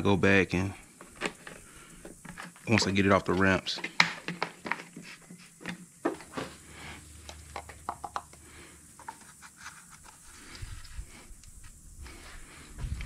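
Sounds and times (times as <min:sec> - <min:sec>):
plastic funnel knocking and rubbing: 0:07.5 - 0:08.4, 0:09.0 - 0:10.5.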